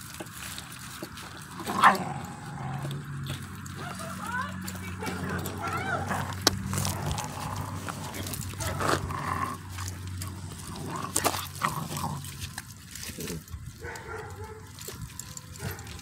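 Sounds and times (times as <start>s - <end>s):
dogs tearing at chicken: 0.0s - 16.0s
scuffling on gravel: 0.0s - 16.0s
dogs whining and yelping: 3.7s - 10.7s.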